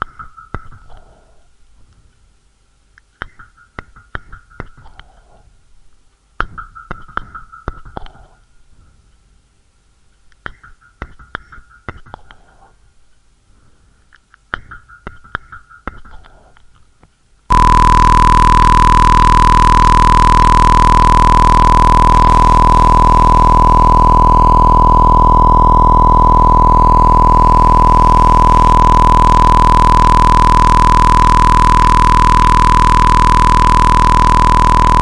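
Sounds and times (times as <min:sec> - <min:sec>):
loud steady tone with hiss: 0:17.2 - 0:35.0
thin high hum: 0:17.5 - 0:35.0.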